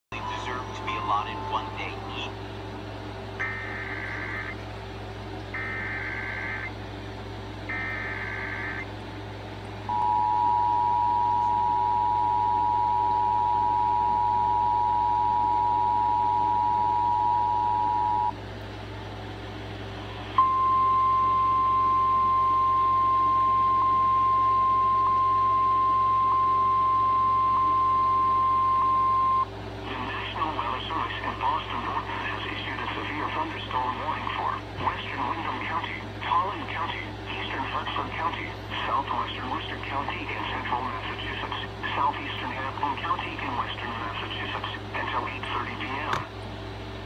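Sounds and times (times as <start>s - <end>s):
screeching data bursts: 3.4s - 4.6s, 5.5s - 6.7s, 7.7s - 8.9s
two-tone attention signal: 9.9s - 18.4s, 20.4s - 29.5s.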